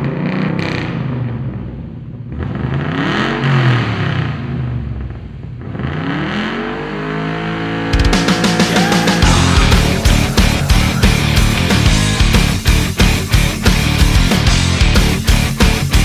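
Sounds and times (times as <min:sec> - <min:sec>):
engine revving: 0:05.6 - 0:16.0
heavy rock music with drums: 0:07.9 - 0:16.0.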